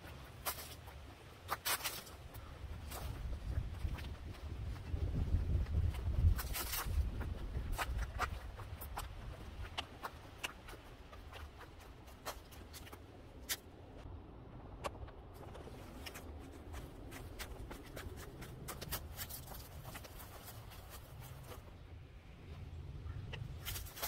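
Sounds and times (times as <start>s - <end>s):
footsteps on dirt and stone: 0.0s - 13.7s, 14.9s - 21.9s
dry leaves crunching underfoot: 0.2s - 4.1s, 5.8s - 8.4s, 15.4s - 21.8s, 23.6s - 24.0s.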